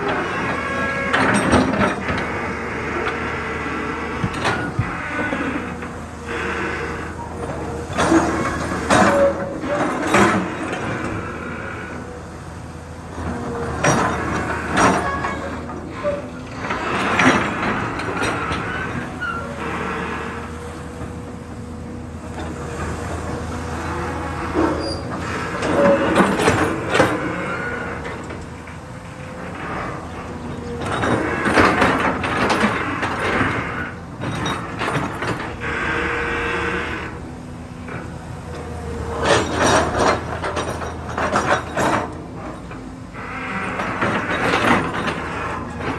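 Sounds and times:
diesel engine running: 0.0 - 45.9
excavator arm squeaks and clanks: 0.0 - 45.9
hydraulic whine: 0.0 - 45.9.

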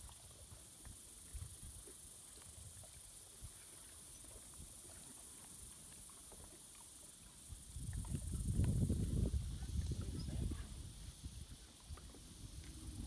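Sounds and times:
wind rumble on microphone: 0.0 - 1.9, 7.4 - 13.0
lake water lapping: 0.0 - 13.0
faint ticks: 4.2 - 8.9.

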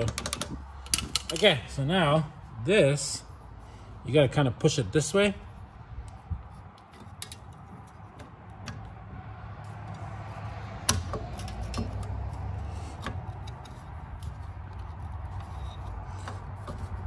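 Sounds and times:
metallic clicks and taps: 0.0 - 1.5, 10.8 - 14.8.

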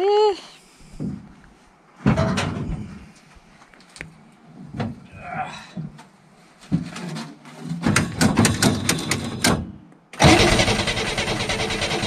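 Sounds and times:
engine cranking on starter: 10.2 - 12.0
engine running loud: 10.2 - 12.0.

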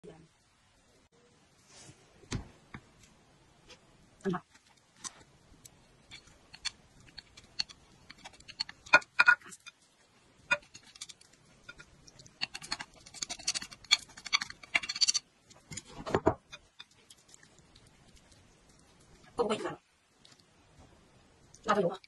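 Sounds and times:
chopsticks scraping ceramic bowl: 6.0 - 9.8, 10.5 - 17.5.

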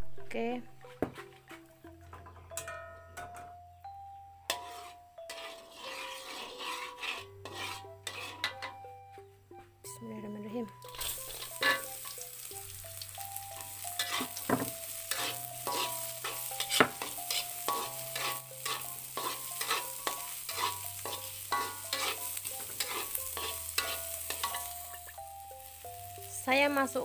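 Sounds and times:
metal spatula scraping wok: 4.5 - 8.8, 10.8 - 26.6
vegetables sizzling in oil: 10.7 - 27.0.

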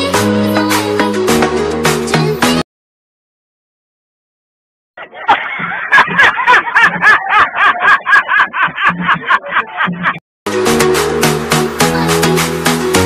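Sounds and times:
man laughing hysterically: 5.0 - 10.2.

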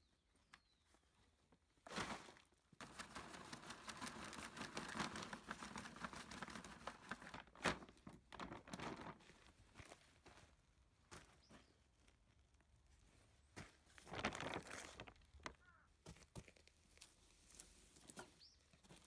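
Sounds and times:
soil pouring into a bag: 1.9 - 9.3, 14.1 - 15.6.

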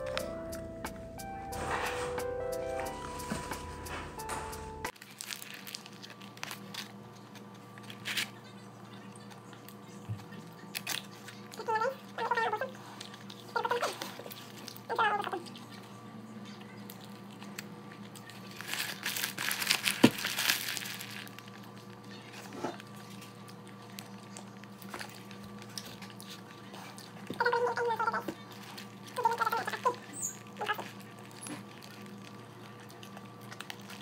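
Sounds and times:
paper wrapper crinkling: 4.9 - 8.5, 18.1 - 22.2, 28.4 - 34.0.

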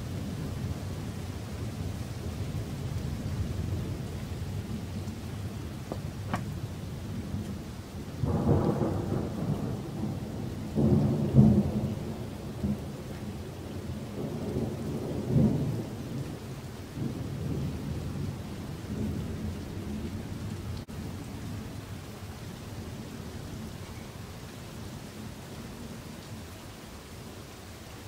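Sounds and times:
rain hissing: 0.0 - 28.0
thunder rumbling: 1.8 - 20.2.

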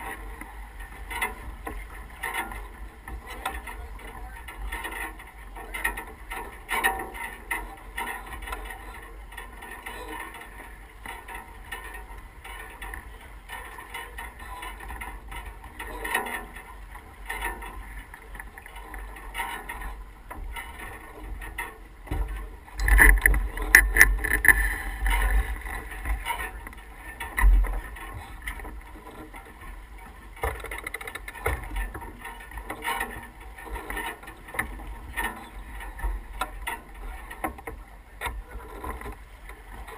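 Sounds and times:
water rushing along hull: 0.0 - 39.9
wind buffeting microphone: 21.9 - 29.0.

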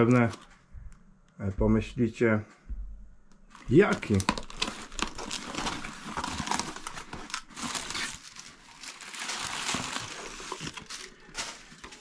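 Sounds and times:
packaging rustling: 3.5 - 12.0.

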